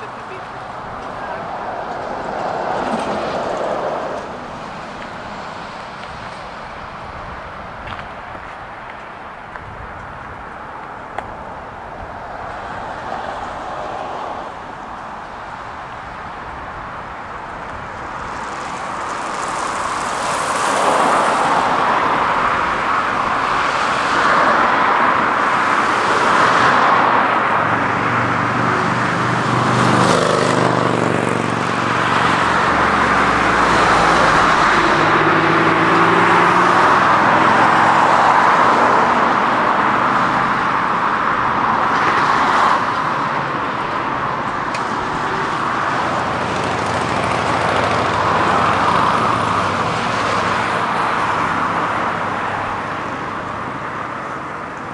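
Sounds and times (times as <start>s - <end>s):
car tyres passing: 0.0s - 54.9s
vehicle engine hum passing: 25.0s - 54.9s.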